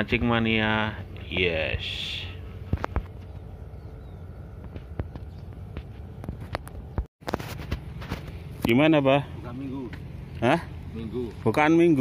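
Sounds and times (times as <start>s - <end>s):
low outdoor rumble: 0.0s - 12.0s
footsteps on dirt path: 4.6s - 8.6s.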